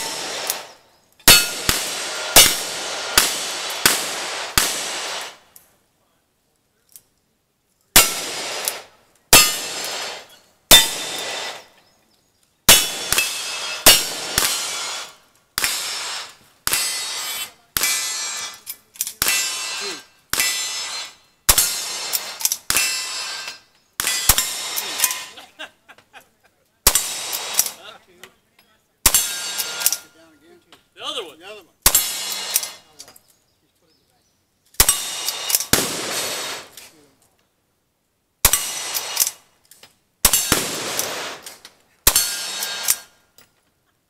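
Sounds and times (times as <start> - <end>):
gunshots: 0.0 - 5.5, 8.0 - 11.8, 12.7 - 25.4, 26.8 - 27.9, 29.0 - 30.1, 31.8 - 32.9, 34.8 - 36.9, 38.4 - 39.4, 40.2 - 43.1
metallic ring of steel target: 1.2 - 2.7, 9.4 - 9.7, 19.2 - 21.9, 29.1 - 30.1, 42.1 - 43.1.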